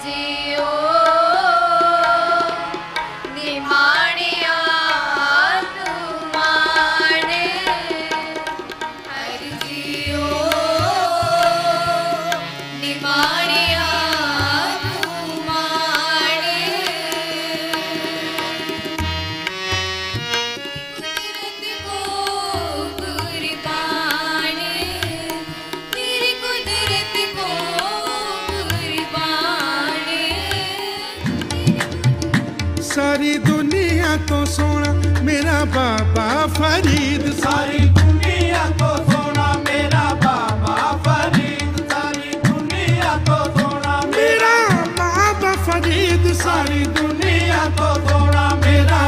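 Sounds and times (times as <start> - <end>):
hymn singing: 9.1 - 18.9, 33.0 - 49.0
harmonium reed tones: 9.7 - 30.5, 44.2 - 47.4.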